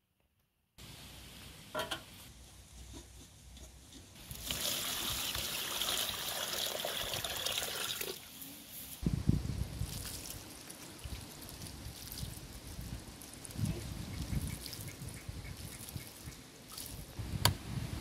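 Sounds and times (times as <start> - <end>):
water pouring into a pot: 4.2 - 8.3.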